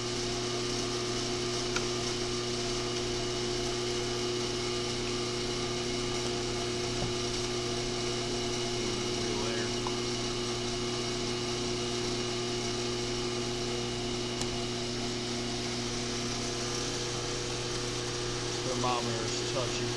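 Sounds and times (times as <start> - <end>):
blower fan blowing air: 0.0 - 19.9
steady electrical hum: 0.0 - 19.9.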